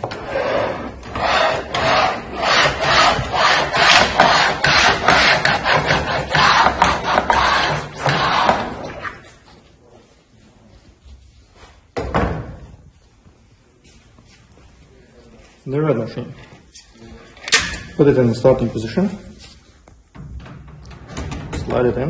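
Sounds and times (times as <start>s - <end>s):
rollers scraping on metal sheet: 0.0s - 9.3s.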